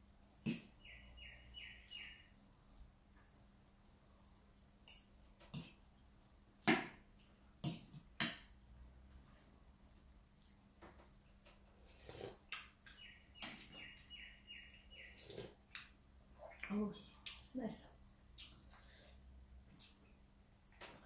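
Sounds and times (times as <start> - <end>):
bird chirping: 0.7 - 2.4, 12.5 - 15.5.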